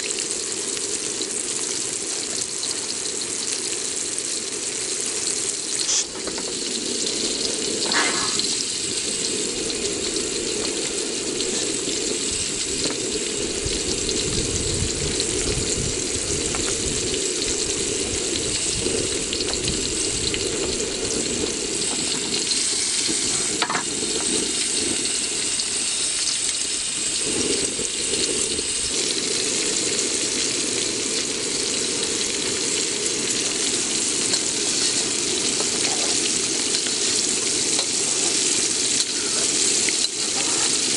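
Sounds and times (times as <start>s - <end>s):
fish sizzling in hot oil: 0.0s - 40.9s.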